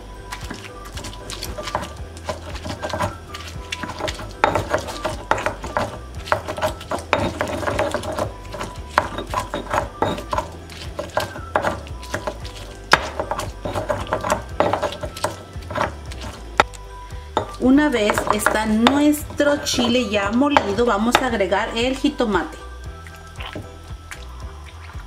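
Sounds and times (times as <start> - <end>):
stone pestle grinding in mortar: 0.2 - 21.8
stone knocking on stone: 3.8 - 15.9, 17.4 - 19.1, 20.5 - 21.3.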